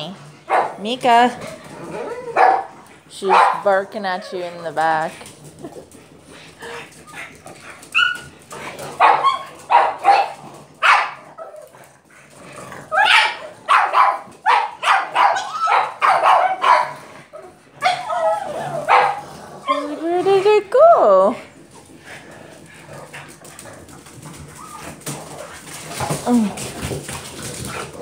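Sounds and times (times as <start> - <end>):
dog barking: 0.5 - 0.8, 2.3 - 2.7, 3.3 - 3.7, 9.0 - 11.2, 13.0 - 17.0, 17.8 - 19.8.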